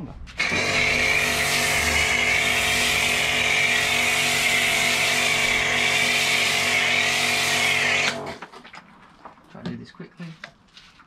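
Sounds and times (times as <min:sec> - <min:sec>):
pressure washer motor humming: 0:00.4 - 0:08.4
foam spray hissing: 0:00.5 - 0:08.1.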